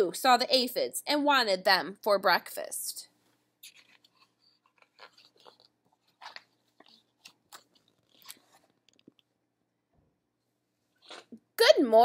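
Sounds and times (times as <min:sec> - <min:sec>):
paper page crackling: 0:03.6 - 0:09.2.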